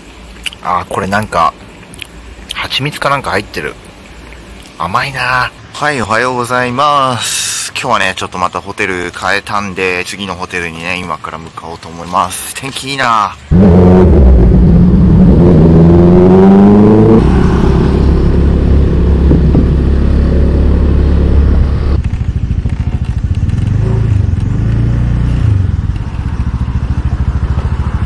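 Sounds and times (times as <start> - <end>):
scooter engine accelerating: 13.5 - 28.0
wind noise while riding: 18.0 - 20.4.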